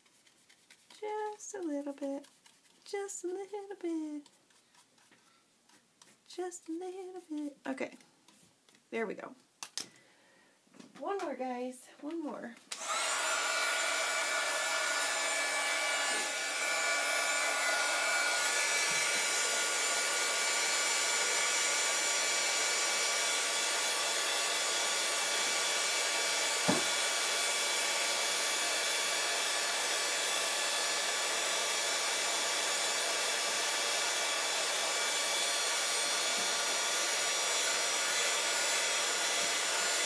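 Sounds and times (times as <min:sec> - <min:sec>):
heat gun blowing: 0:12.7 - 0:40.0.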